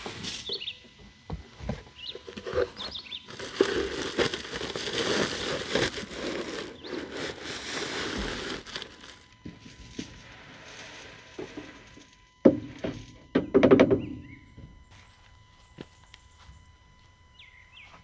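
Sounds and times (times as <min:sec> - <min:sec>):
rustling and crackling: 0:00.0 - 0:13.3.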